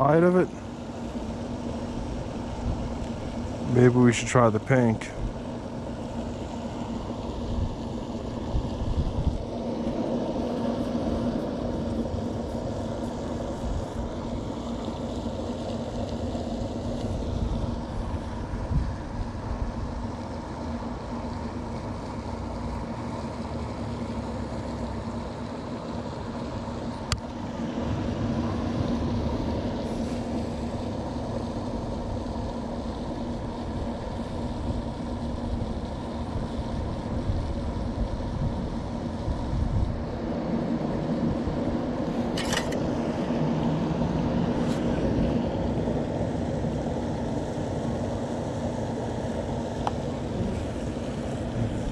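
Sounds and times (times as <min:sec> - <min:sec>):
low background hum: 0:00.0 - 0:51.9
wind rumbling against microphone: 0:07.1 - 0:14.8, 0:15.5 - 0:20.2, 0:27.7 - 0:51.9.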